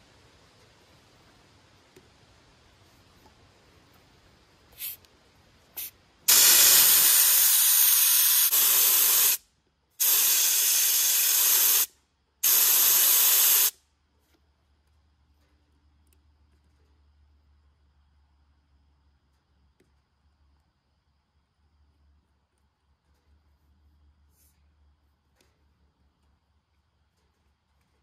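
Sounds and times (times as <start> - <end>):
air hissing out of a tire: 4.7 - 5.1, 5.7 - 9.4, 10.0 - 13.8.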